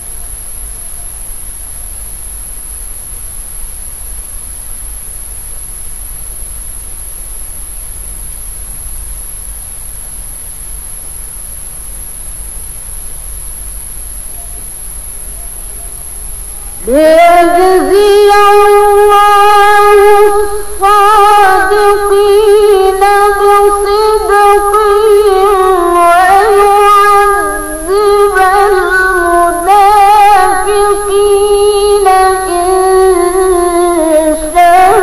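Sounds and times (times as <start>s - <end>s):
woman reciting melodically: 16.7s - 35.0s.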